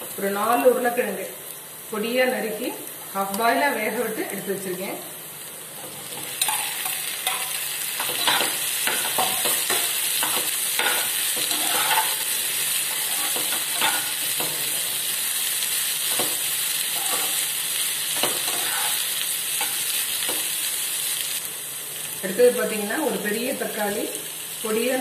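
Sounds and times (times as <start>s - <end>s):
onions and potatoes sizzling in oil: 0.0s - 25.0s
spatula scraping and knocking pan: 5.9s - 12.2s, 12.8s - 14.7s, 16.1s - 17.5s, 18.2s - 19.0s.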